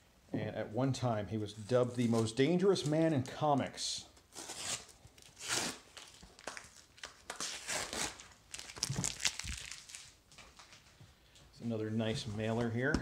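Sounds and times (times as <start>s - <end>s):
tape rustling in hand: 1.6s - 11.1s
packing tape ripping off cardboard: 4.3s - 10.7s.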